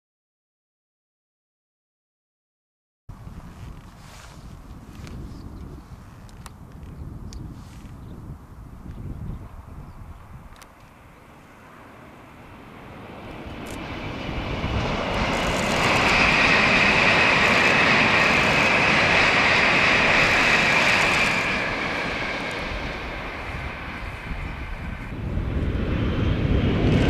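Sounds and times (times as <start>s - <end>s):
high-speed train rushing past: 9.6s - 27.0s.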